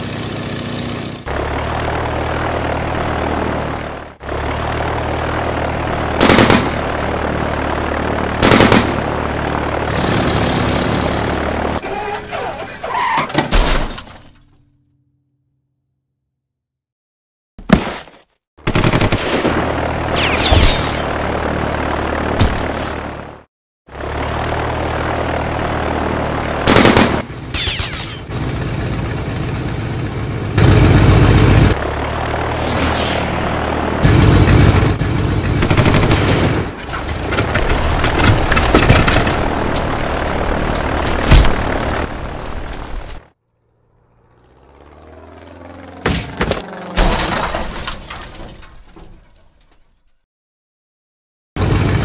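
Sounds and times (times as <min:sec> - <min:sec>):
propeller aircraft engine droning: 0:00.0 - 0:13.2, 0:18.8 - 0:27.6, 0:28.2 - 0:47.0, 0:51.6 - 0:52.0
rapid machine-gun fire: 0:06.0 - 0:07.4, 0:08.3 - 0:11.5, 0:18.6 - 0:20.4, 0:26.6 - 0:27.4, 0:34.0 - 0:39.8
debris breaking and shattering: 0:47.0 - 0:50.2.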